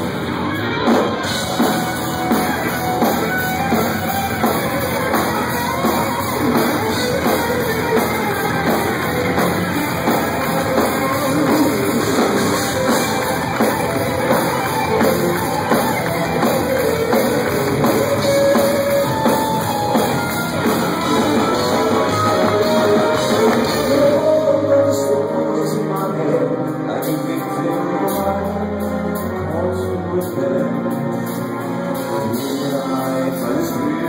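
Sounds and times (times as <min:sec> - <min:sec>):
pounding drum kit: 0:00.0 - 0:29.5
distorted electric guitars: 0:00.0 - 0:34.0
man singing: 0:09.4 - 0:13.6, 0:20.6 - 0:34.0.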